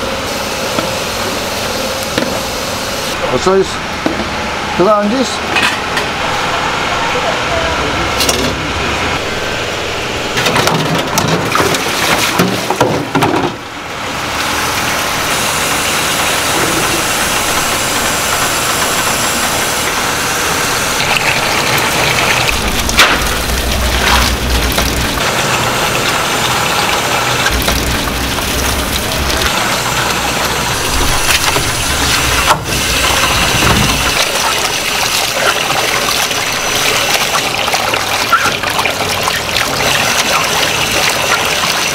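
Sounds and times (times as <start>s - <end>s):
water rushing and splashing: 14.2s - 41.9s.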